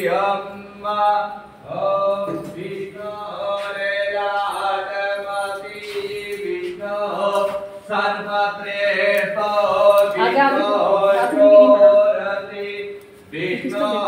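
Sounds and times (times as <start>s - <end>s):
person chanting melodically: 9.0s - 12.7s.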